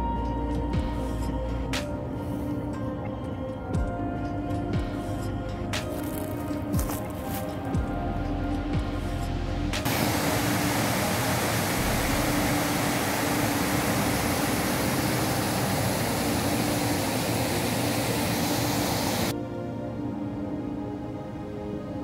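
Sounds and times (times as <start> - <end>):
water falling down fountain wall: 9.9 - 19.3.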